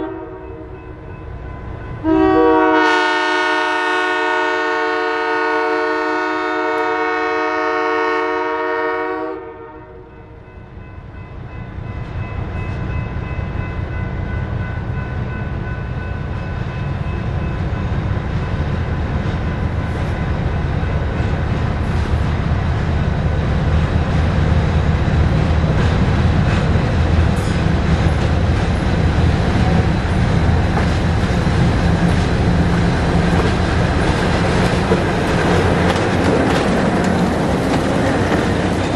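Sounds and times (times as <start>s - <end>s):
locomotive air horn chord: 0.0s - 0.8s, 2.0s - 10.3s
diesel locomotive engine rumble: 0.0s - 38.9s
rail noise: 0.0s - 38.9s.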